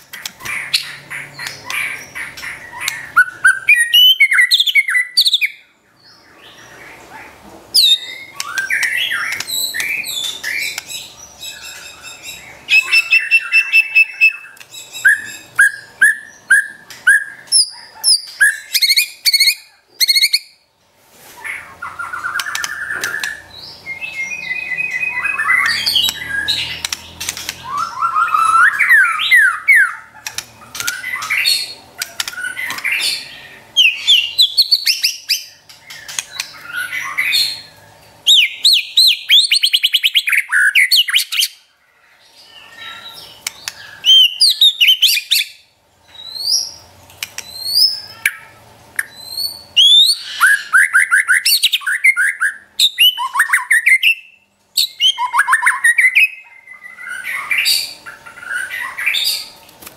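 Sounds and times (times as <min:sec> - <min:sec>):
bird singing rapid whistles: 0:02.7 - 0:05.6, 0:07.8 - 0:20.6, 0:21.8 - 0:41.6, 0:42.8 - 0:45.6, 0:47.4 - 0:48.4, 0:49.0 - 0:59.5.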